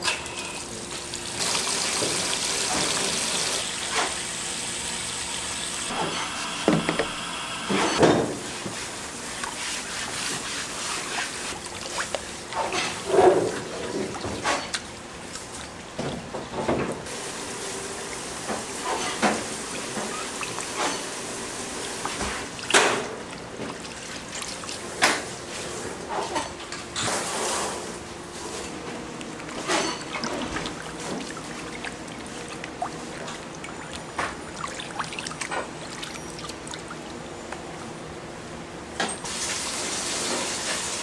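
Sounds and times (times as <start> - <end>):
water running from a tap: 0.6 - 8.0, 17.0 - 23.1, 39.3 - 41.0.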